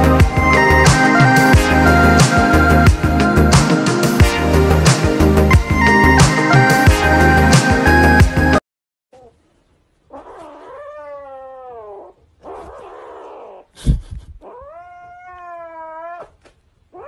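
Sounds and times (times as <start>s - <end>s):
cat yowling: 10.1s - 13.7s, 14.4s - 17.0s.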